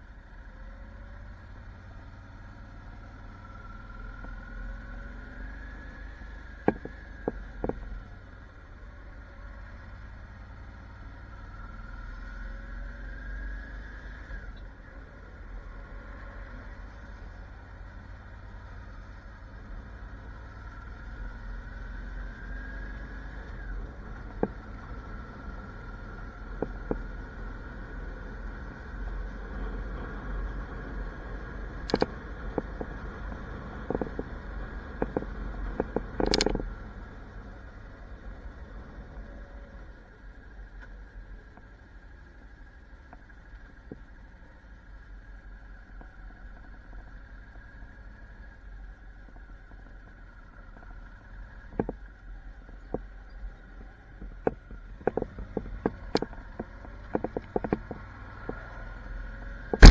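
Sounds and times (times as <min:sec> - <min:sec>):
motorcycle engine and wind rumble: 0:00.0 - 0:59.9
sharp clicks and rattles: 0:31.8 - 0:33.0, 0:33.8 - 0:36.7, 0:54.2 - 0:58.6, 0:59.7 - 0:59.9
short clatter: 0:35.0 - 0:36.6
motorcycle engine running low: 0:50.4 - 0:59.9.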